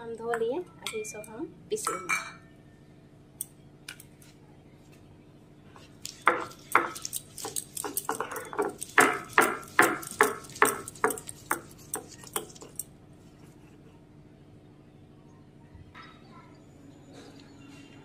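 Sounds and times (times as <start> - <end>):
stone roller grinding on stone: 6.2 - 12.8.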